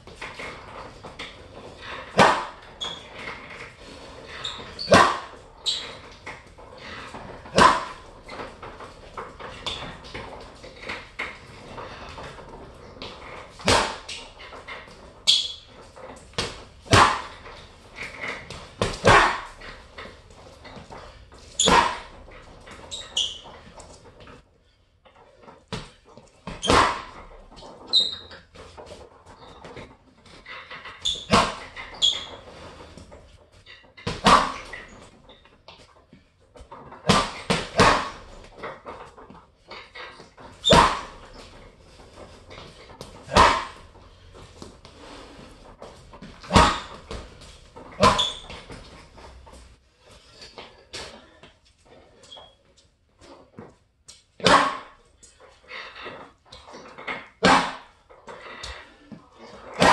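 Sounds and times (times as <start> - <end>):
short high squeaks: 2.2 - 6.2, 15.2 - 15.8, 21.5 - 23.7, 26.6 - 28.6, 30.5 - 32.9, 39.7 - 41.6, 47.9 - 48.8
gloves punching heavy bag: 7.4 - 8.1, 13.0 - 14.2, 16.3 - 17.6, 18.4 - 19.7, 21.6 - 22.3, 25.7 - 27.4, 31.2 - 31.8, 34.0 - 35.0, 37.0 - 38.4, 40.6 - 41.4, 43.0 - 43.9, 46.2 - 47.4, 48.0 - 48.8, 57.4 - 57.9, 59.7 - 59.9.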